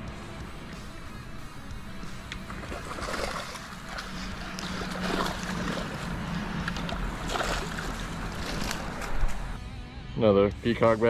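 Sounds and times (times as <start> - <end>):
fish thrashing and splashing: 2.3 - 9.6.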